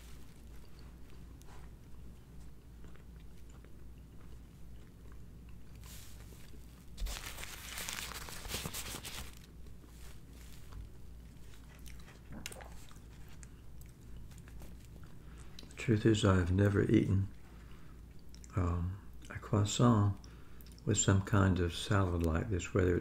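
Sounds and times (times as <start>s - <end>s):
close-up chewing: 0.0s - 15.8s, 17.3s - 19.4s
air conditioner humming: 0.0s - 23.0s
paper napkin crinkling: 5.8s - 13.4s.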